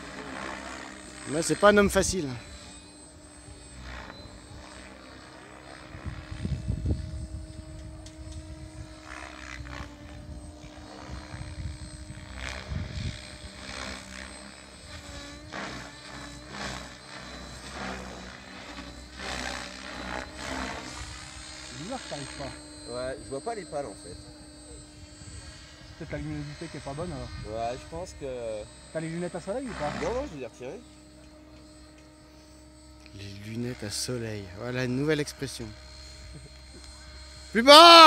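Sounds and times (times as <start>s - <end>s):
model helicopter rotor hum: 0.0s - 38.0s
wind buffeting microphone: 6.0s - 9.0s, 10.1s - 13.6s.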